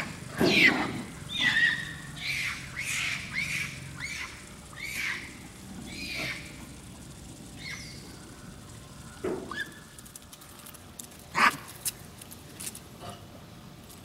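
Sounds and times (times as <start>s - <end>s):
macaque calls: 0.4s - 6.6s.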